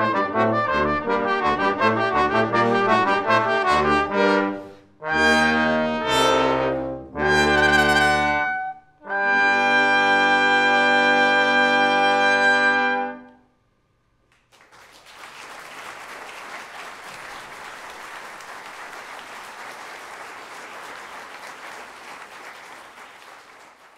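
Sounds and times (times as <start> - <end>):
brass quintet holding a chord: 0.0 - 13.4
audience applause: 14.4 - 23.9.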